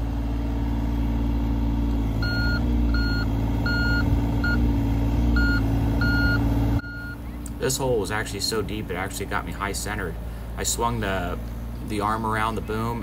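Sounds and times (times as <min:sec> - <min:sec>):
diesel engine running: 0:00.0 - 0:13.0
travel alarm beeps: 0:02.2 - 0:04.6, 0:05.4 - 0:07.2.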